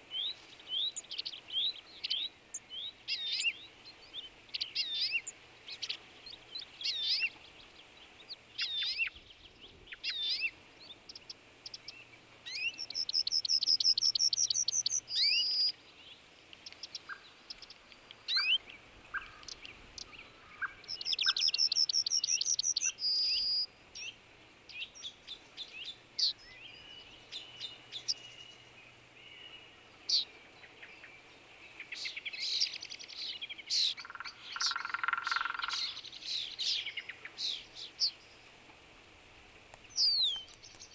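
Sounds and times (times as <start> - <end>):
songbirds singing and chirping: 0.0 - 40.9
bird trilling: 33.8 - 36.0.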